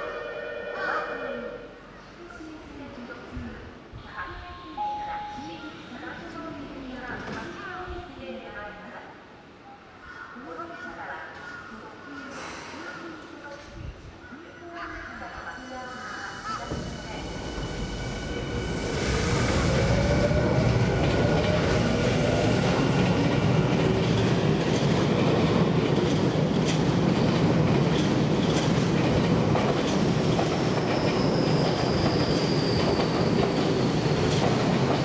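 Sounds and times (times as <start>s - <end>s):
wheels rushing on rail: 15.6s - 35.0s.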